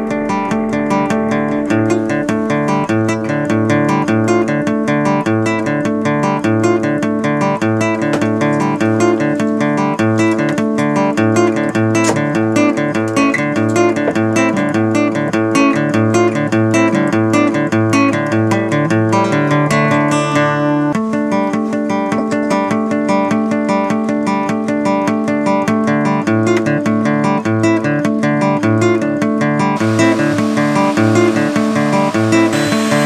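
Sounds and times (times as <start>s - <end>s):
strummed acoustic guitar: 0.0s - 33.0s.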